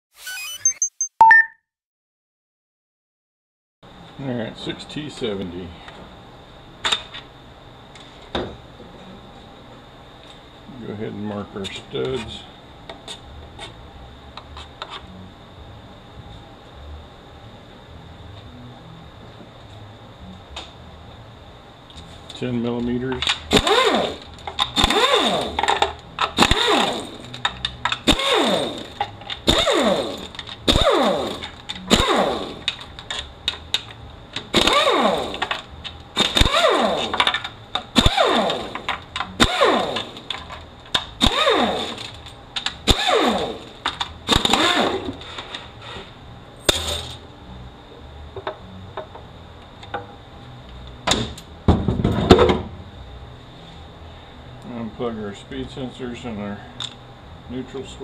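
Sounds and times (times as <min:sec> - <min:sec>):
air ratchet bursts: 0:23.5 - 0:25.7, 0:26.4 - 0:27.2, 0:28.0 - 0:32.7, 0:36.2 - 0:37.2, 0:38.0 - 0:38.8, 0:39.4 - 0:40.2, 0:41.2 - 0:42.2.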